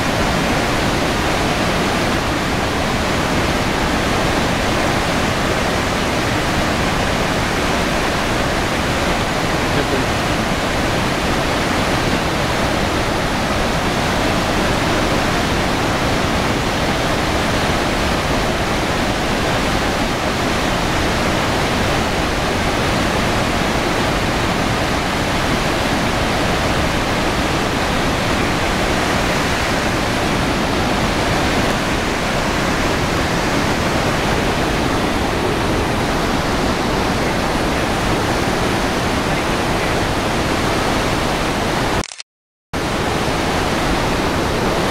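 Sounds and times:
waterfall roaring: 0.0 - 42.0, 42.8 - 44.9.

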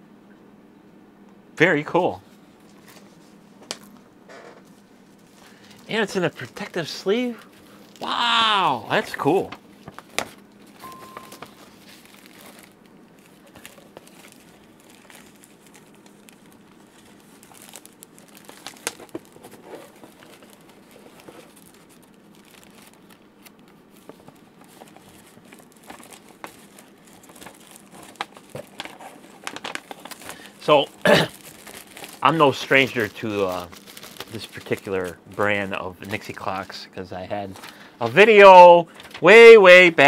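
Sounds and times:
plastic and paper crinkling: 2.6 - 4.0, 4.6 - 40.0.

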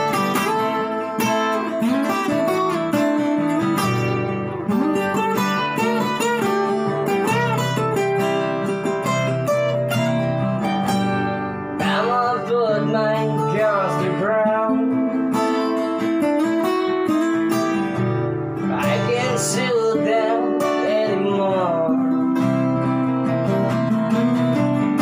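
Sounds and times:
acoustic guitars strummed: 0.0 - 25.0
man singing: 11.8 - 15.8, 18.6 - 23.6.

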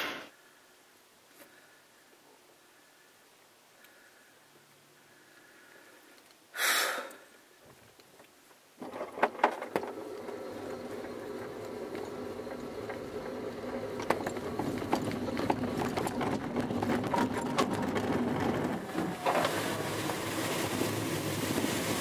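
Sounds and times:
short loud hiss: 0.0 - 0.4, 6.5 - 7.3
glider rolling over grass: 7.6 - 22.0.

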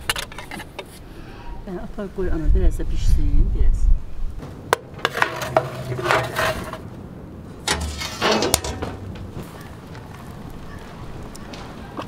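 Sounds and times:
metal baking tray scraping: 4.9 - 6.9, 7.6 - 9.2.

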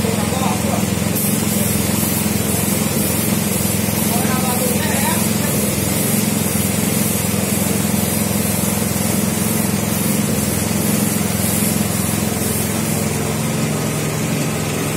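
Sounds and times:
air compressor motor hum: 0.0 - 14.9
spray gun hissing: 0.0 - 14.9.

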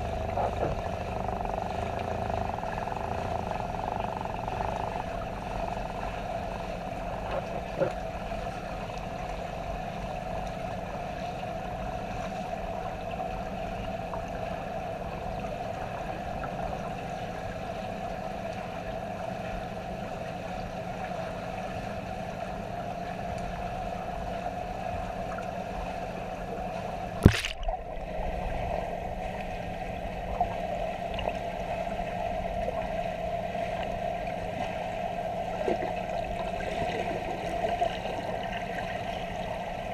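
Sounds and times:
muffled underwater noise: 0.0 - 39.9
steady hum: 0.0 - 39.9
sharp knock: 27.2 - 27.6.

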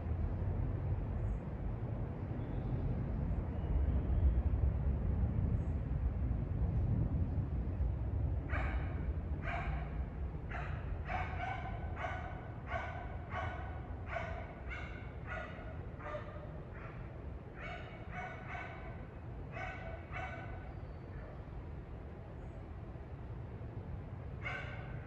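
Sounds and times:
dog barking: 8.5 - 20.7, 24.4 - 25.0.

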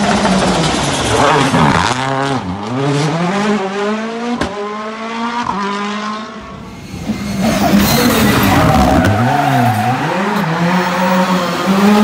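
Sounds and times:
rally car engine accelerating: 0.0 - 12.0
rally car arriving loudly: 6.3 - 12.0.

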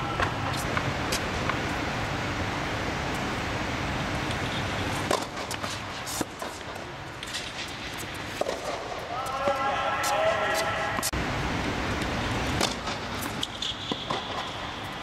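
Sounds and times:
steady rushing background noise: 0.0 - 15.0
tennis balls struck by rackets: 5.0 - 9.4, 12.4 - 14.7.

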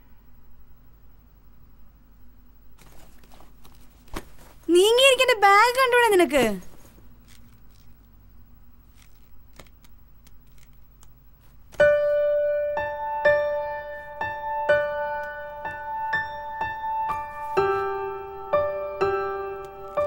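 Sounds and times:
soft piano melody: 11.7 - 20.0.

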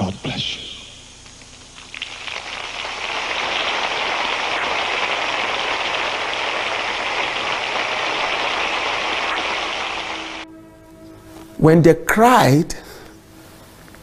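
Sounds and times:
congregation applauding: 1.8 - 10.4.

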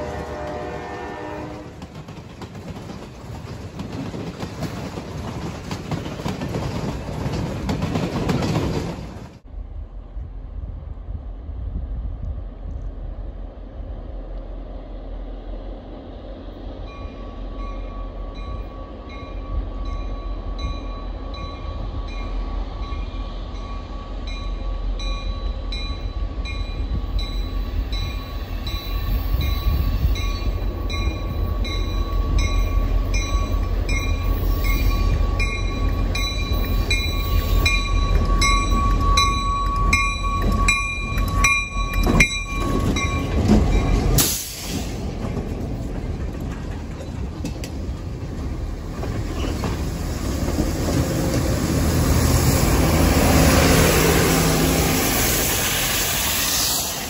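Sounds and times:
train rumbling: 0.0 - 57.0.

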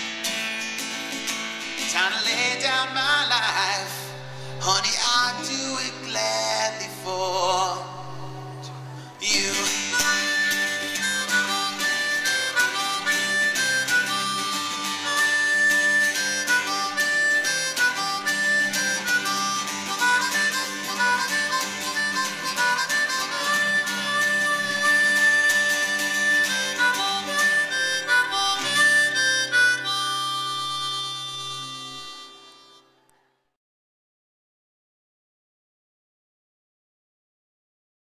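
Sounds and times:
acoustic guitar strumming: 0.0 - 33.1
harmonica solo: 7.9 - 33.2.

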